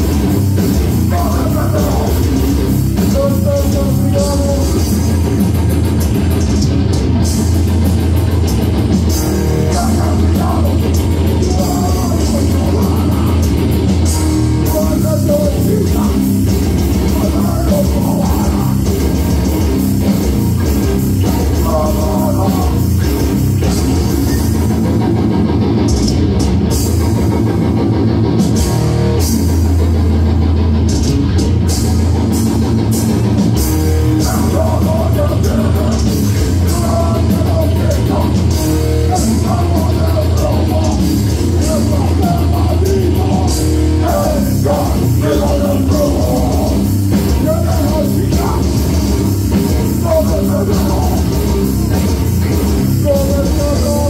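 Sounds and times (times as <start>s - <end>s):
bass guitar: 0.0s - 54.0s
distorted guitars: 0.0s - 54.0s
drum kit: 0.0s - 54.0s
shouted vocals: 9.6s - 13.4s, 39.1s - 52.0s.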